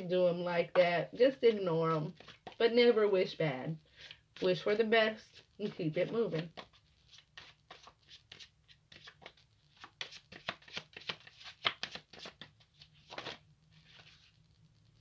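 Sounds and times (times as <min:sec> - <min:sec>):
cards being shuffled: 0:02.0 - 0:02.6, 0:03.9 - 0:15.0.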